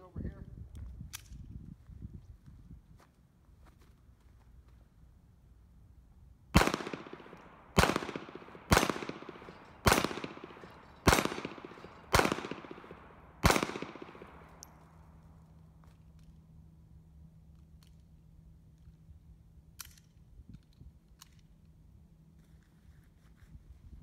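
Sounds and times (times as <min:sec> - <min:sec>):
pistol shots with echo: 0:06.6 - 0:14.7.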